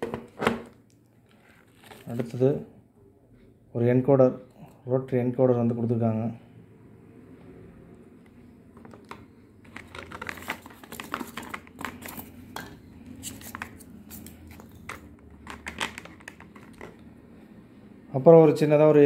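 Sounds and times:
hands handling plastic and boards: 0:00.0 - 0:02.4, 0:08.7 - 0:17.0.

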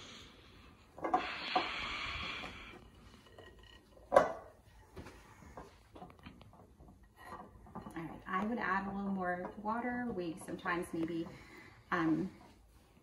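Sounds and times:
wooden spoon scraping bowl: 0:01.0 - 0:12.6.

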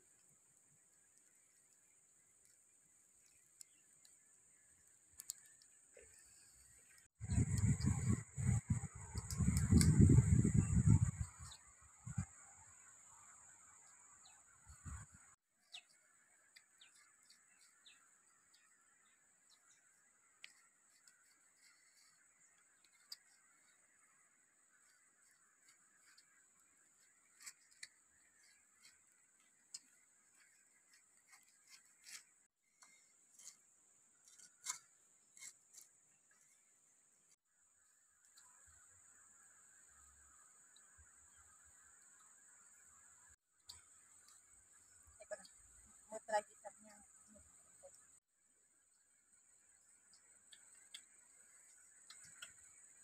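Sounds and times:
bird chirps: 0:01.2 - 0:33.1
faint ticks: 0:04.8 - 0:08.0, 0:50.0 - 0:53.0.

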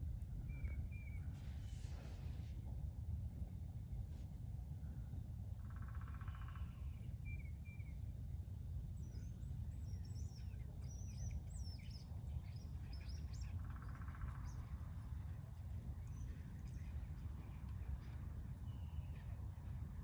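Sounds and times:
songbirds twittering: 0:08.9 - 0:20.0
low rumble: 0:11.5 - 0:20.0.

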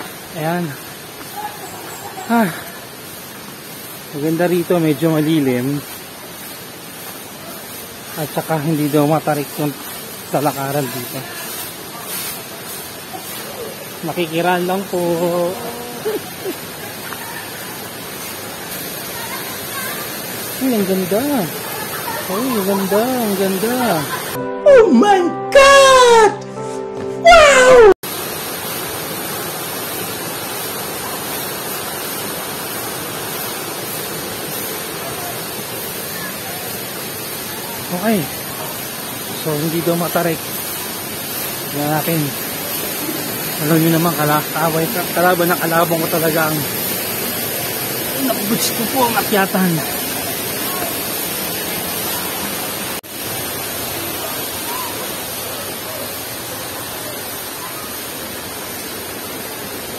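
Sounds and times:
thin high hiss: 0:00.0 - 0:24.4, 0:27.5 - 0:56.0
waterfall pouring into rock pool: 0:00.0 - 0:24.4, 0:28.0 - 0:59.9.

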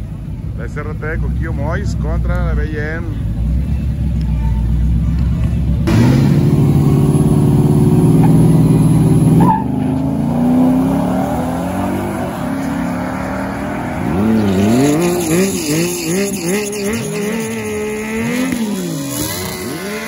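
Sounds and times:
suv engines revving and launching: 0:01.0 - 0:20.0
nearby engine revving: 0:05.8 - 0:20.0.

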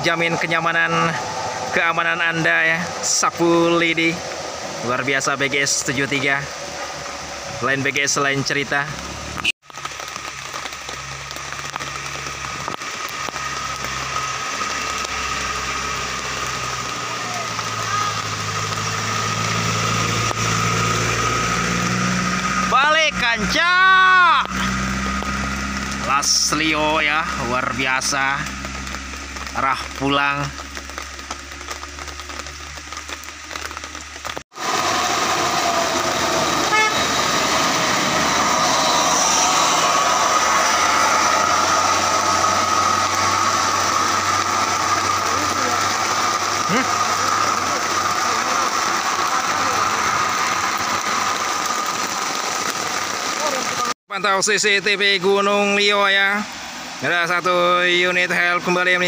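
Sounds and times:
van engine humming: 0:00.0 - 0:53.9
heavy rain on road and foliage: 0:00.0 - 0:59.0
short horn toot: 0:36.6 - 0:37.2.

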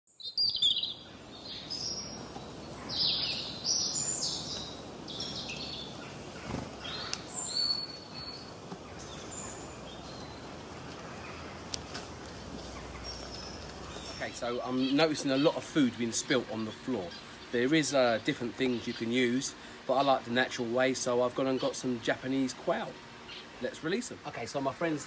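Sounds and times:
small birds chirping: 0:00.1 - 0:25.0
steady background noise: 0:00.6 - 0:25.0.

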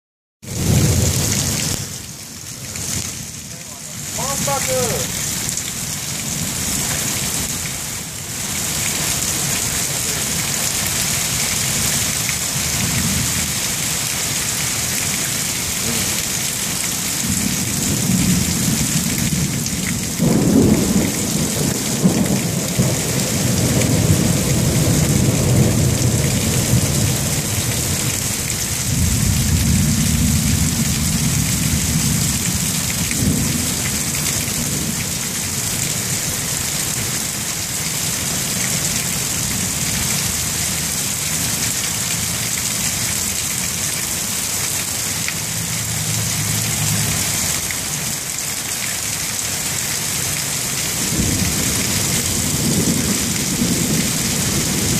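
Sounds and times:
steady rain falling: 0:00.4 - 0:54.9
thunder rumbling and clapping: 0:17.3 - 0:28.2.

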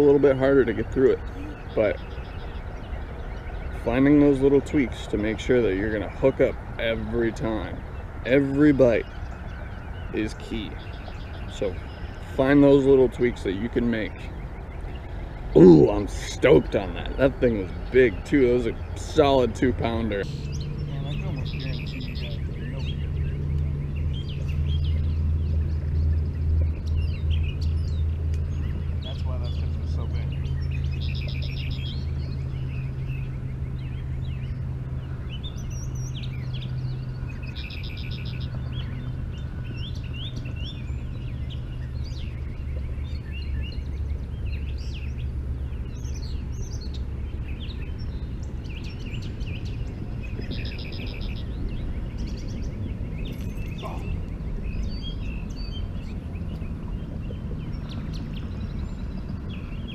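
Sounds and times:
bird trilling: 0:00.0 - 0:59.9
songbirds chirping: 0:00.0 - 0:59.9
steady low hum: 0:00.0 - 0:59.9.

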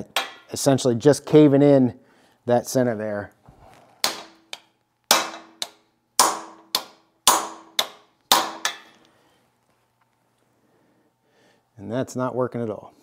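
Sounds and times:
hammer striking metal socket: 0:04.0 - 0:09.0.

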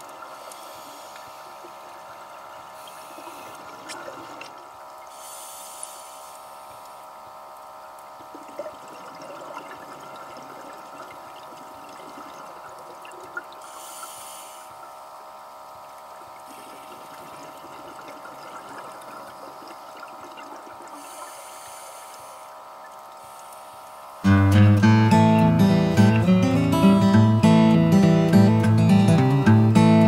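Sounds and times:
steady hum: 0:00.0 - 0:30.0
underwater bubbling from exhaled air: 0:08.1 - 0:13.7, 0:14.8 - 0:21.4.

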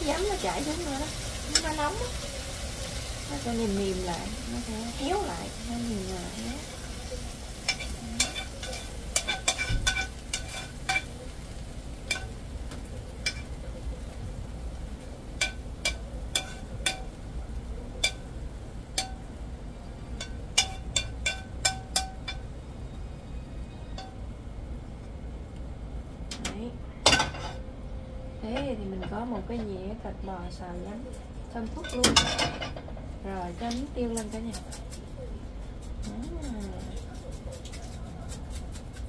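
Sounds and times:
chopsticks tapping on metal pan: 0:07.6 - 0:11.2, 0:12.1 - 0:13.5, 0:15.4 - 0:17.2, 0:18.0 - 0:18.3, 0:18.9 - 0:19.3, 0:20.2 - 0:22.5.

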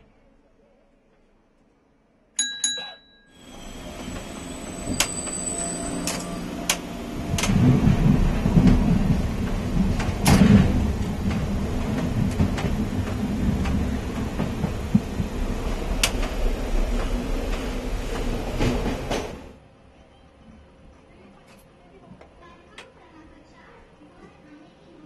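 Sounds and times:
train wheels rumbling on rails: 0:03.4 - 0:19.6.

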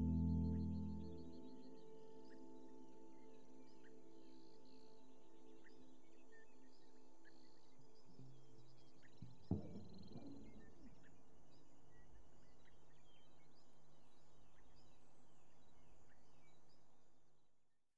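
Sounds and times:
bass guitar knock: 0:00.0 - 0:01.2
bass strings ringing: 0:00.0 - 0:01.3
low bass drone: 0:00.0 - 0:01.4.

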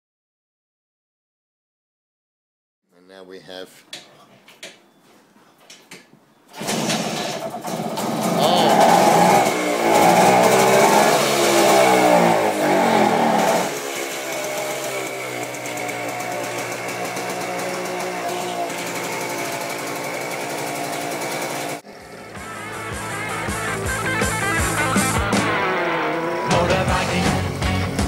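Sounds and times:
two-stroke engine revving and idling: 0:06.6 - 0:28.0.

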